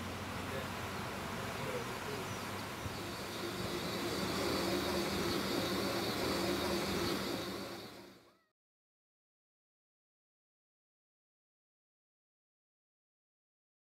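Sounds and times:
steam locomotive hissing: 1.8s - 8.3s.

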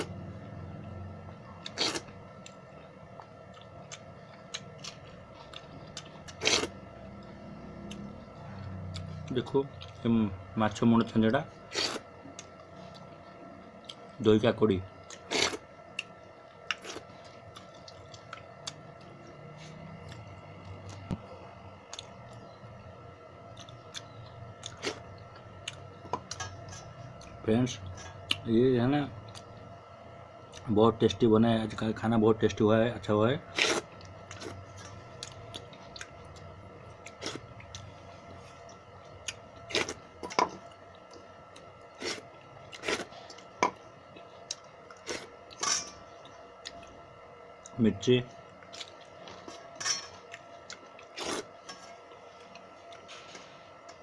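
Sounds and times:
faint steady hum: 0.0s - 54.0s
person chewing food: 1.5s - 10.0s, 11.7s - 14.2s, 15.0s - 22.5s, 23.5s - 27.4s, 29.2s - 29.6s, 33.5s - 47.0s, 48.4s - 54.0s
wet eating sounds: 1.6s - 10.1s, 33.5s - 47.0s, 47.6s - 54.0s.

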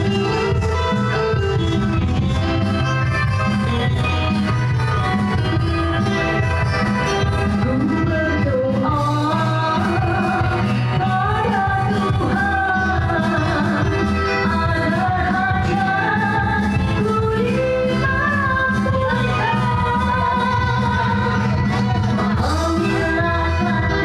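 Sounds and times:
live band with electric guitars: 0.0s - 24.0s
woman singing into a microphone: 7.2s - 24.0s.

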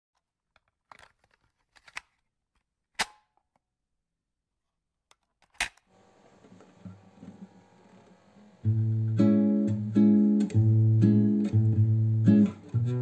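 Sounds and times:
faint steady hum: 5.9s - 13.0s.

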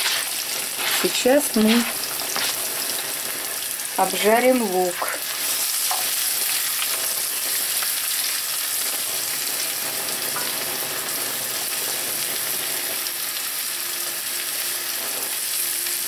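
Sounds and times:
spatula stirring in pan: 0.0s - 3.2s, 5.5s - 7.0s
onion sizzling in frying pan: 0.0s - 16.0s.

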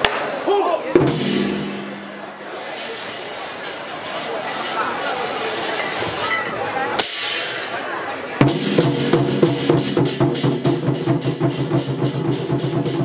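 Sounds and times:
war drums beating: 0.0s - 3.3s, 8.4s - 13.0s.

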